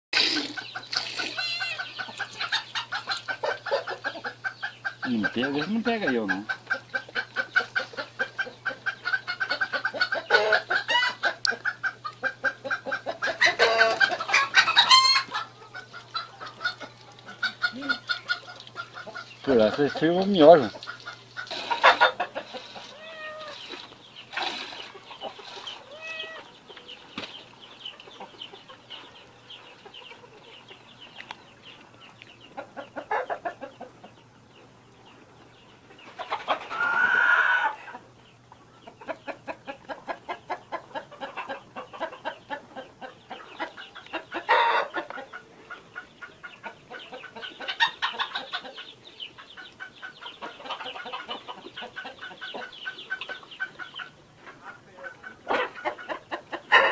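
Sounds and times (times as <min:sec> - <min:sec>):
hens clucking: 0:00.2 - 0:56.9
hen drawn-out call: 0:00.3 - 0:06.3, 0:21.5 - 0:23.8, 0:25.6 - 0:26.6, 0:36.7 - 0:38.0.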